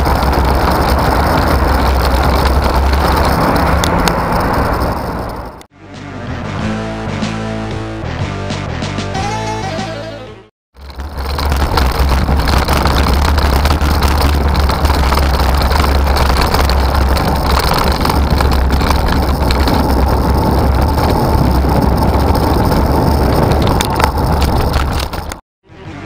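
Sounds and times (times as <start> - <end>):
passing vehicles: 0.0 - 5.6
road and wind noise: 0.0 - 5.7, 10.8 - 26.0.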